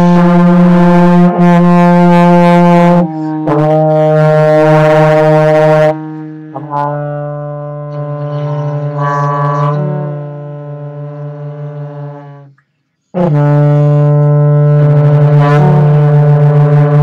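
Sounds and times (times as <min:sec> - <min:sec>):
trombones holding low note: 0:00.0 - 0:12.6, 0:13.2 - 0:17.0.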